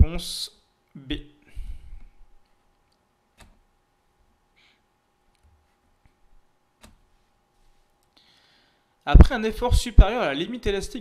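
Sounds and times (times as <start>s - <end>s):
faint steady hum: 0.0s - 11.0s
computer mouse clicks: 2.9s - 3.6s, 6.8s - 7.0s.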